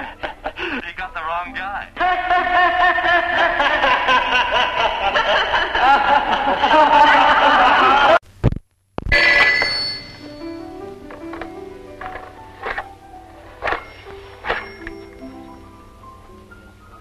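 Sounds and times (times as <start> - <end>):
telephone bell ringing: 9.1 - 10.6, 13.7 - 15.3.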